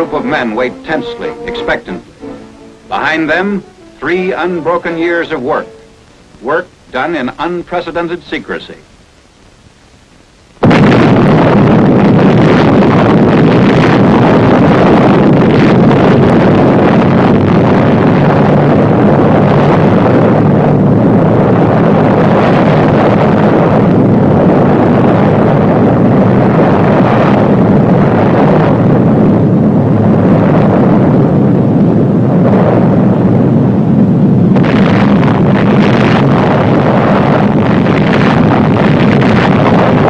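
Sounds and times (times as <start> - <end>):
explosion rumble: 10.6 - 40.0.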